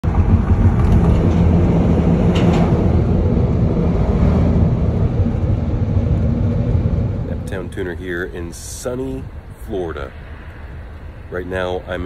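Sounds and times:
car tyre rumble on bridge: 0:00.0 - 0:09.5.

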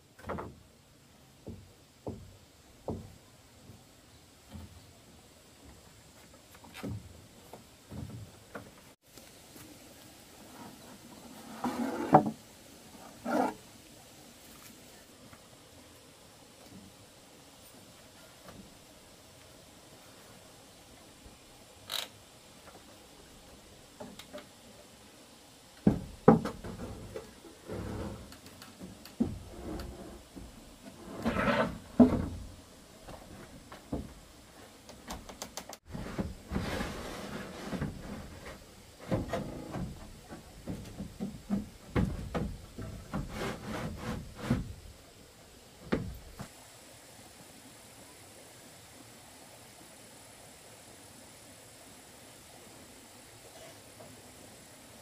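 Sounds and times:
roofing sheet knocking and scraping: 0:25.8 - 0:29.8, 0:30.4 - 0:32.5, 0:35.8 - 0:44.9.

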